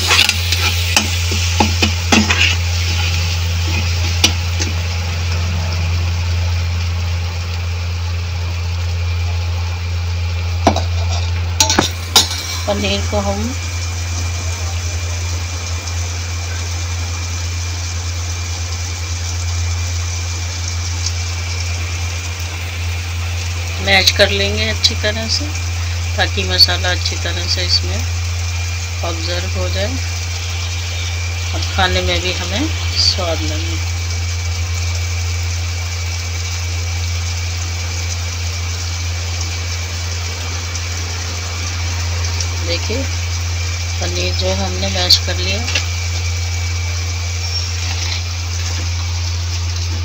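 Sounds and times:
even hiss: 0:00.0 - 0:05.9
faint high whine: 0:00.0 - 0:50.0
food sizzling in hot oil: 0:00.0 - 0:50.0
low motor hum: 0:00.0 - 0:50.0.

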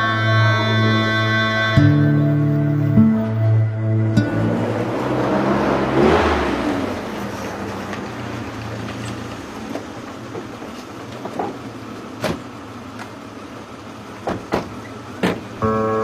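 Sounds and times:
car engines running: 0:00.0 - 0:16.0
car doors shutting: 0:08.9 - 0:13.3, 0:14.1 - 0:16.0.

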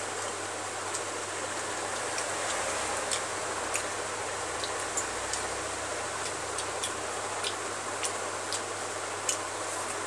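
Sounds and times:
person chewing food: 0:01.9 - 0:10.0.

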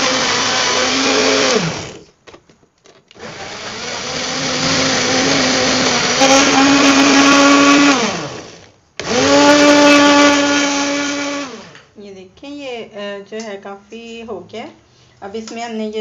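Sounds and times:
blender motor running: 0:00.0 - 0:02.1, 0:03.2 - 0:11.8.

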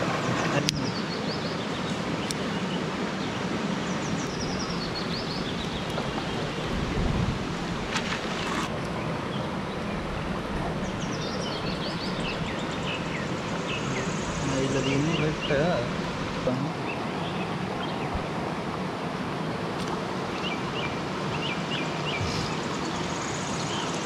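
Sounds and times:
stream flowing: 0:00.0 - 0:24.0
bird chirping: 0:00.2 - 0:06.7, 0:08.4 - 0:15.9, 0:20.3 - 0:24.0.

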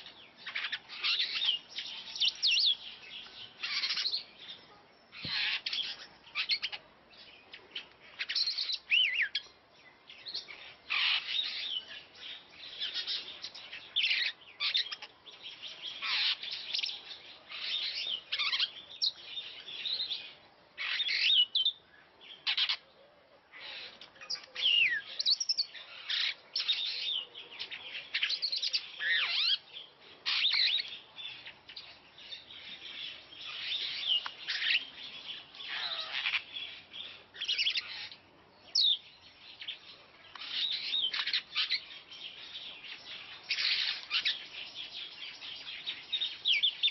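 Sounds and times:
starling singing: 0:24.2 - 0:46.9.

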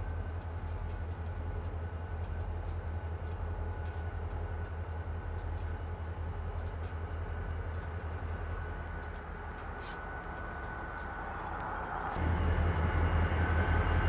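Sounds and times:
diesel locomotive engine throb: 0:00.0 - 0:14.0
high whine: 0:03.9 - 0:14.0.

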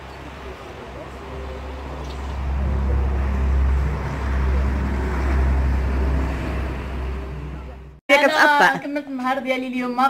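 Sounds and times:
road traffic rumble: 0:00.0 - 0:08.0.

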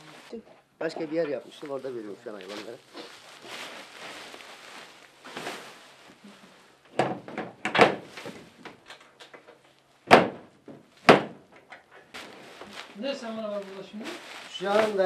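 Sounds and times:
plastic sack rustling: 0:01.1 - 0:06.8, 0:08.0 - 0:08.7, 0:12.0 - 0:15.0
sharp knocks: 0:10.1 - 0:11.5.

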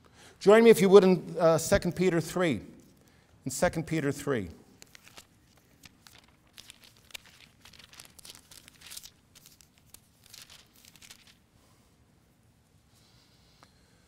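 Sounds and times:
thin paper pages rustling: 0:04.7 - 0:11.4.

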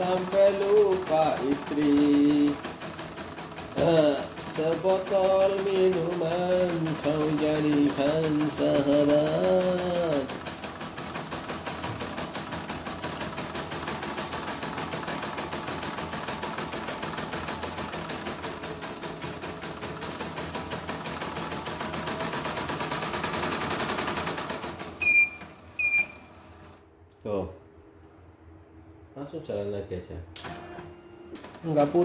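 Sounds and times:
embroidery machine stitching: 0:00.0 - 0:26.8, 0:30.4 - 0:32.0
short electronic beeps: 0:25.0 - 0:26.3.

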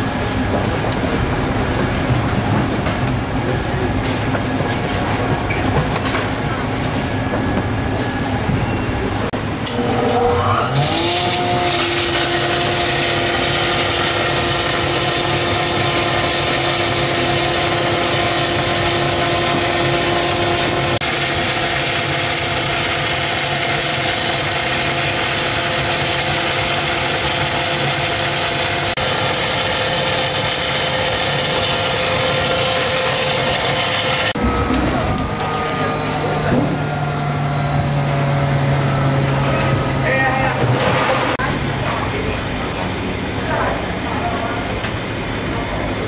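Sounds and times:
machine motor running: 0:09.4 - 0:41.4
liquid pouring into bucket: 0:21.1 - 0:35.0.

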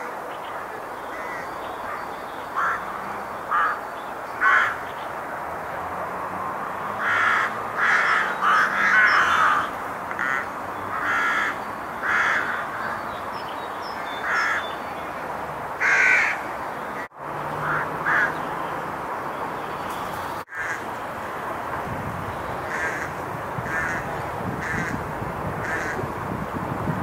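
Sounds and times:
rooks cawing: 0:00.6 - 0:04.9, 0:07.0 - 0:13.2, 0:13.9 - 0:14.8, 0:15.8 - 0:16.5, 0:17.6 - 0:18.5, 0:20.5 - 0:20.9, 0:22.7 - 0:26.1.

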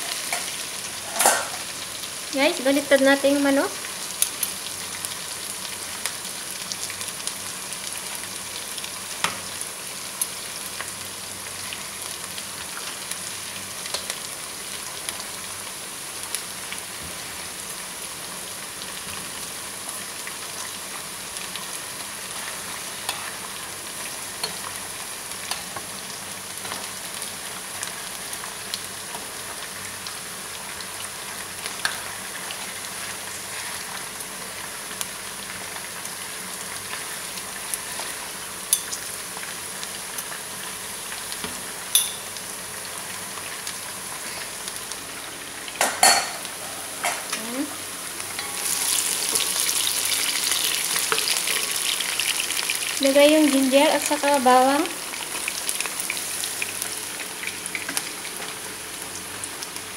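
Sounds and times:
chicken frying in oil: 0:00.0 - 0:59.9.

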